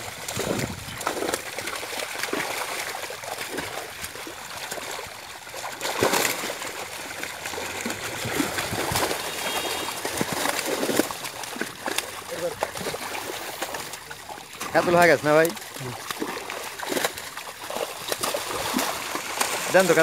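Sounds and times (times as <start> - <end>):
fish thrashing and splashing: 0.0 - 20.0.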